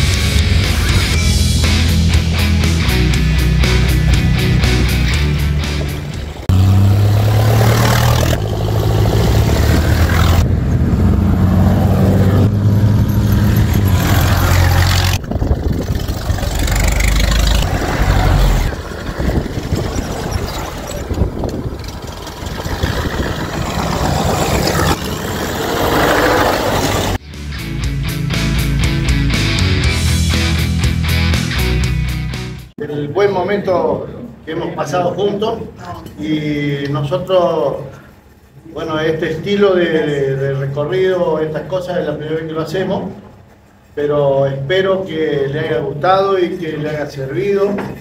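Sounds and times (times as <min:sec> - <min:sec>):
old car engines driving past: 0:00.0 - 0:32.6.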